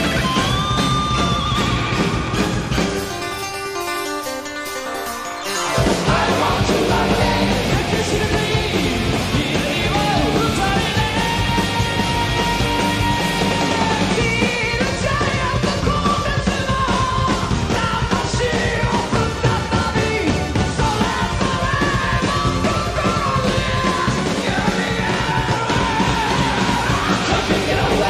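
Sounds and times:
electric bass: 0:00.0 - 0:03.3, 0:05.8 - 0:28.0
drums: 0:00.0 - 0:28.0
man singing lead vocal: 0:05.8 - 0:28.0.

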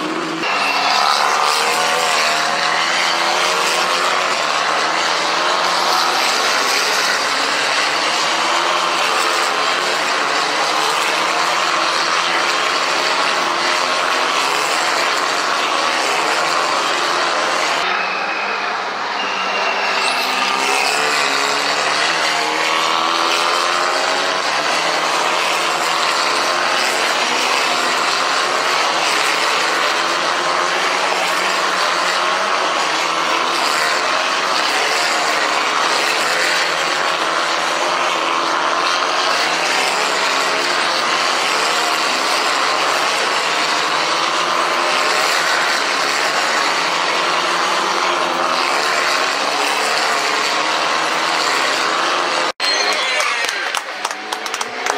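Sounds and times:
race car engines: 0:00.0 - 0:54.9.

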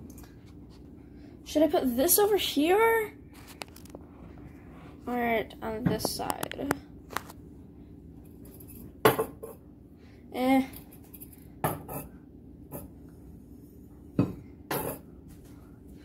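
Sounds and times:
canisters knocking on countertop: 0:09.0 - 0:09.6.

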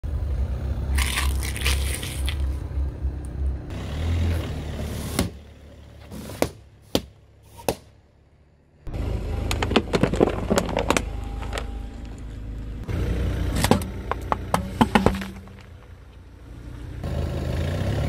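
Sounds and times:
low engine hum: 0:00.0 - 0:18.0
car tyres rolling over objects: 0:09.4 - 0:11.7, 0:13.5 - 0:16.3.

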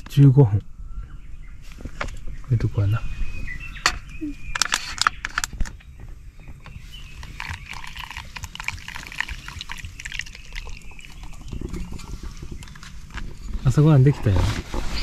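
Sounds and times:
water pouring and splashing: 0:06.8 - 0:13.4.

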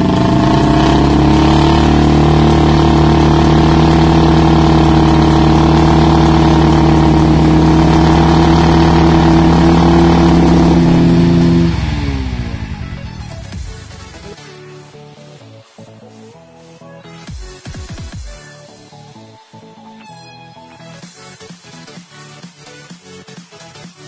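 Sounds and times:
wheels spinning in sand: 0:00.0 - 0:14.0
motorcycles revving high: 0:00.0 - 0:14.3.

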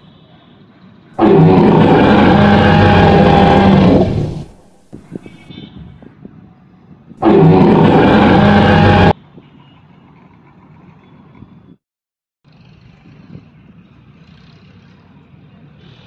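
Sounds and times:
low street background: 0:00.0 - 0:11.8
dinosaur roar sound effect: 0:01.2 - 0:04.7, 0:07.2 - 0:09.2.

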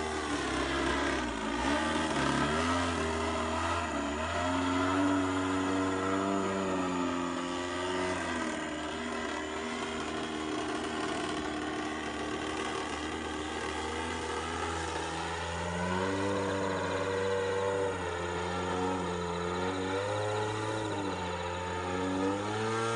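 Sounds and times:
model plane engine in flight: 0:00.0 - 0:22.9.

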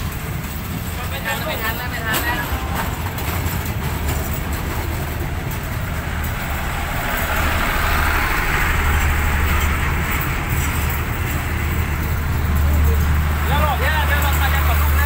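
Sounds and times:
rushing noise of passing train: 0:00.0 - 0:15.0
train wheels rumbling on track: 0:00.0 - 0:15.0.

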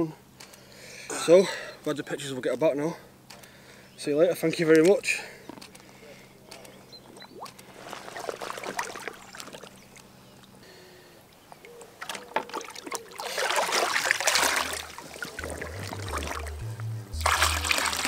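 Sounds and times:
water sloshing and splashing: 0:07.1 - 0:10.1, 0:11.6 - 0:16.6, 0:17.2 - 0:18.0
water dripping: 0:11.6 - 0:18.0.

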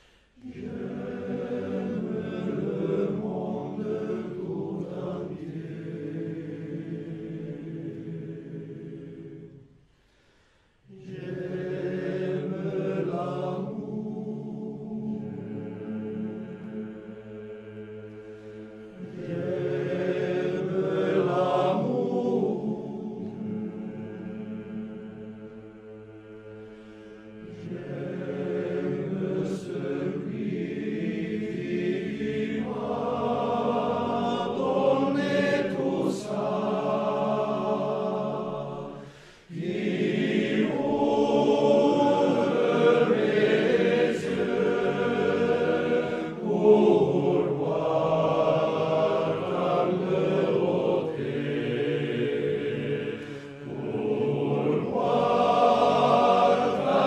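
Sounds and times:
male choir singing unaccompanied: 0:00.0 - 0:09.6, 0:10.9 - 0:57.0.

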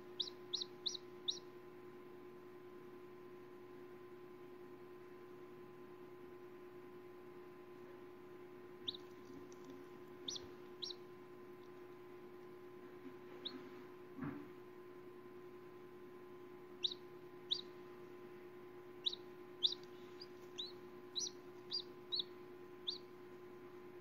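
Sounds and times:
chick peeping inside egg: 0:00.0 - 0:01.8, 0:08.0 - 0:14.2, 0:16.2 - 0:24.0
steady low hum: 0:00.0 - 0:24.0.

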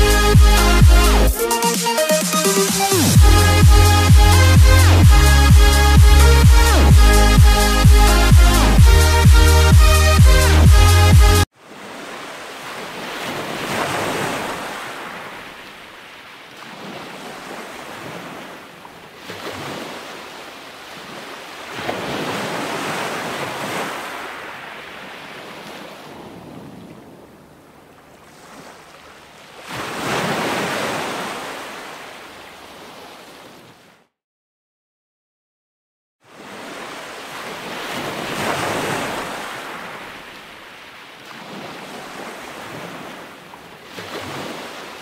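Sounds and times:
surf breaking on beach: 0:11.6 - 0:27.4, 0:29.6 - 0:32.2, 0:36.3 - 0:45.0.

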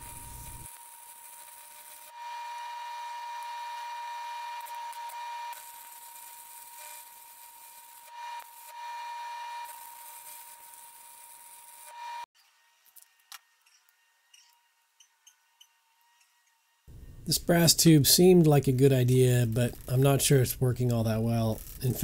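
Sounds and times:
welding arc hissing and crackling: 0:00.0 - 0:02.2, 0:04.6 - 0:08.8, 0:09.6 - 0:12.0, 0:16.9 - 0:22.0.

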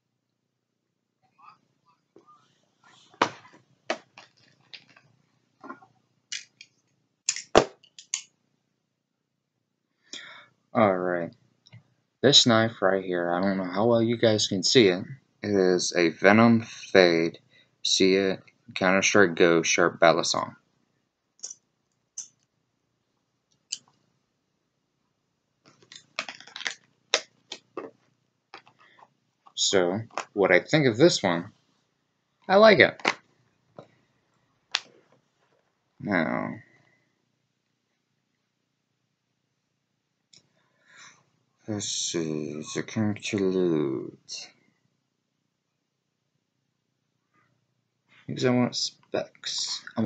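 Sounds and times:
small hard objects clicking: 0:06.3 - 0:06.7, 0:07.3 - 0:08.3.

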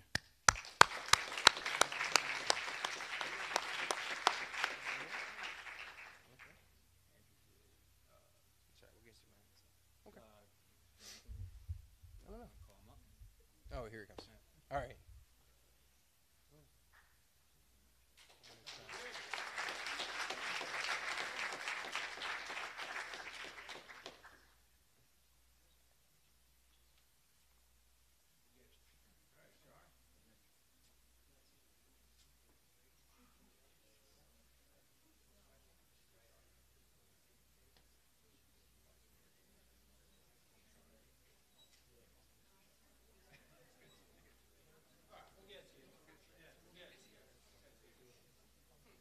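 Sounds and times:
single sharp claps: 0:00.0 - 0:06.1
audience applauding: 0:00.0 - 0:06.6, 0:18.2 - 0:24.6.

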